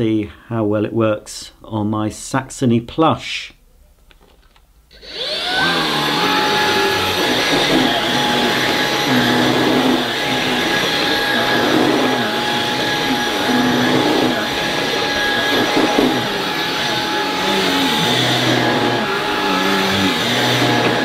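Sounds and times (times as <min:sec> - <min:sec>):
stick vacuum whining: 0:04.9 - 0:21.0
brush head on thick carpet: 0:05.0 - 0:21.0.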